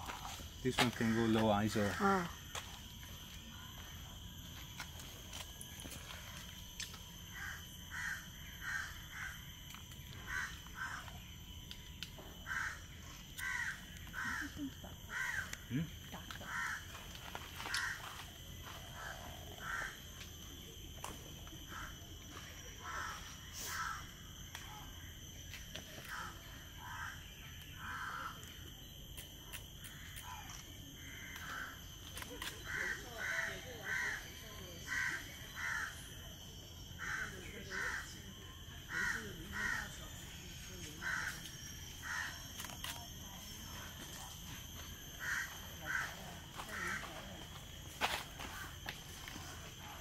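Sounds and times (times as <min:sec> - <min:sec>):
faint high-pitched tone: 0:00.0 - 0:50.0
crows cawing: 0:07.3 - 0:09.5, 0:10.1 - 0:11.3, 0:12.4 - 0:15.6, 0:16.3 - 0:18.3, 0:19.0 - 0:20.1, 0:22.8 - 0:24.1, 0:26.1 - 0:28.4, 0:31.0 - 0:31.9, 0:32.6 - 0:36.0, 0:37.0 - 0:38.1, 0:38.9 - 0:39.9, 0:41.0 - 0:41.4, 0:42.0 - 0:42.4, 0:45.2 - 0:47.1.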